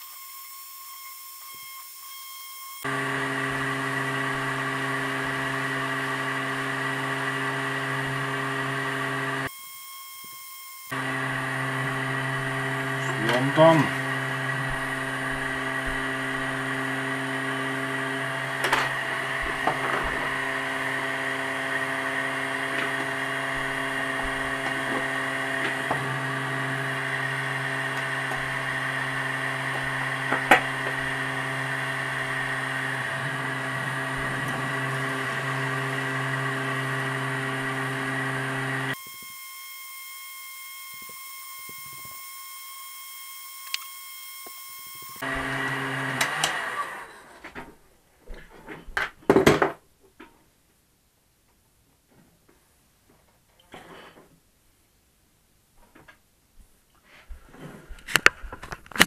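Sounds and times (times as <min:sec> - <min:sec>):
heat gun fan humming and hissing: 0:00.0 - 0:35.8, 0:37.2 - 0:45.5.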